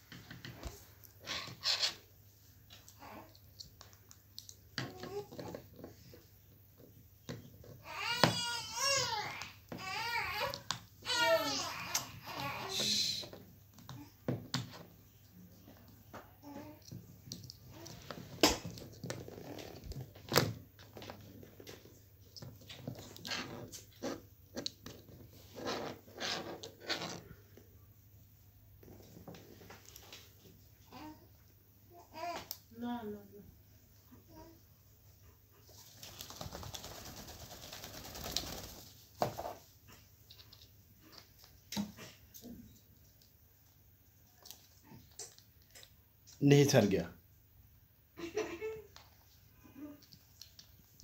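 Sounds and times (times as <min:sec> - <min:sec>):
bird wings flapping: 0:35.8 - 0:39.1.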